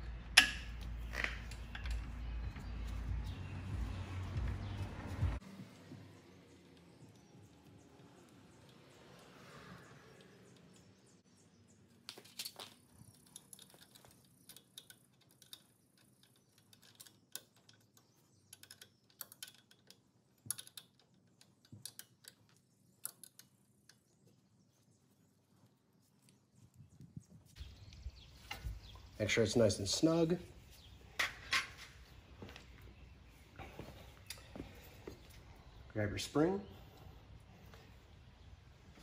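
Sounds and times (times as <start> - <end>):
small metallic clicks and taps: 0.3 - 3.1, 12.0 - 24.1.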